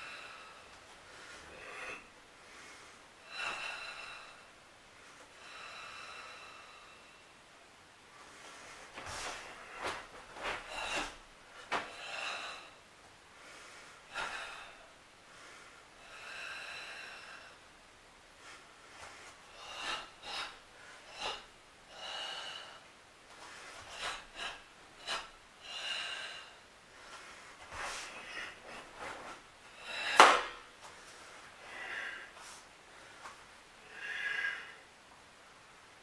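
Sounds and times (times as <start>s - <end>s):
forceful hissing breaths: 18.4s - 35.0s.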